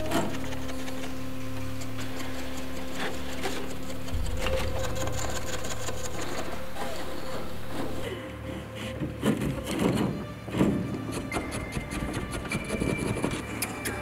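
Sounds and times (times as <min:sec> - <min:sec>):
loom bobbins clicking and tapping: 0:00.0 - 0:08.0, 0:09.2 - 0:14.0
low hum with held tones: 0:00.0 - 0:08.8.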